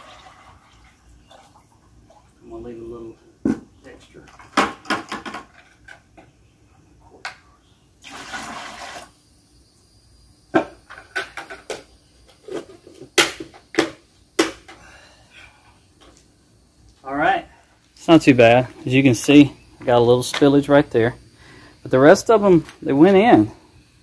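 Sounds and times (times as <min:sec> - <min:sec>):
syrup pouring into plastic pail: 0:08.0 - 0:09.2.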